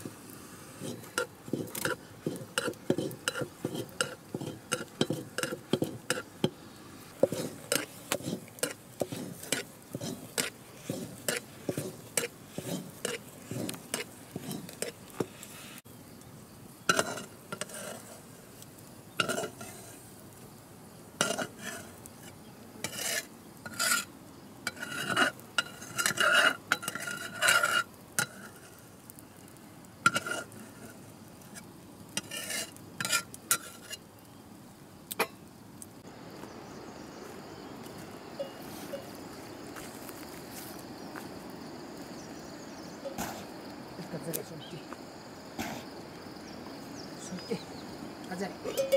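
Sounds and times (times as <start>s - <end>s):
steady outdoor hiss: 0.0s - 48.9s
metal ladle scraping pot: 0.8s - 6.6s, 7.2s - 15.4s, 16.9s - 18.2s, 19.2s - 20.0s, 21.2s - 24.1s, 24.7s - 28.8s, 30.1s - 31.0s, 32.2s - 34.0s.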